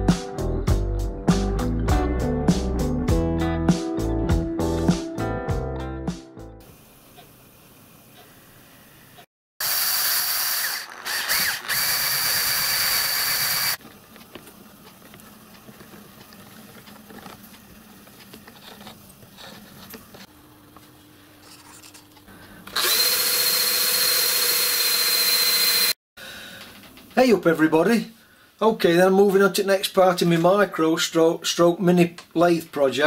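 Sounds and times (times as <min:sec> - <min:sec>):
cordless drill whining: 0:09.6 - 0:13.8, 0:22.6 - 0:26.0.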